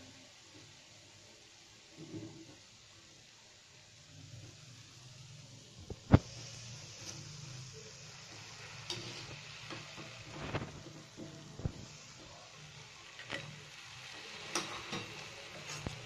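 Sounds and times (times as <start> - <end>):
dough sizzling in hot fat: 0.0 - 16.0
steel spoon clinking on pan: 14.5 - 15.8.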